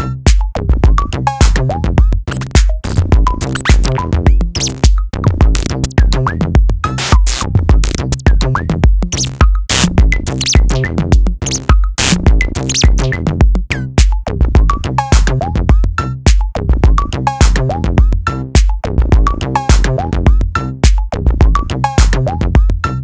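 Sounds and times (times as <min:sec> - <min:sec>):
deep kick drum: 0:00.0 - 0:22.8
pitch-bending sample blips: 0:02.3 - 0:04.9, 0:09.1 - 0:09.4, 0:10.2 - 0:13.3
clicky percussion hits: 0:02.3 - 0:05.0, 0:09.1 - 0:10.8, 0:11.4 - 0:13.1.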